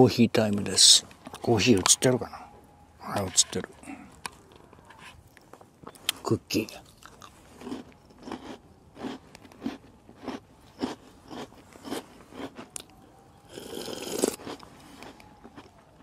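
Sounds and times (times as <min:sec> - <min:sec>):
person chewing crunchy cookie: 0:03.2 - 0:16.0.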